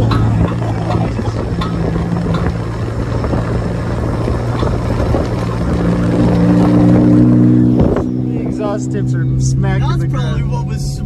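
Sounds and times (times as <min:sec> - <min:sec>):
car engine drone: 0:00.0 - 0:11.0
road noise rumbling: 0:00.0 - 0:11.0.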